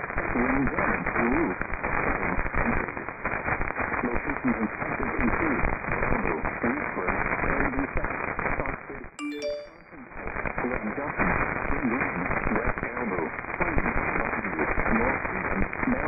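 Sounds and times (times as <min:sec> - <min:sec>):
crackling radio static: 0:00.0 - 0:09.2, 0:10.2 - 0:16.0
faint radio speech: 0:00.3 - 0:01.6, 0:04.0 - 0:09.0, 0:11.8 - 0:16.0
phone notification chime: 0:09.2 - 0:09.9.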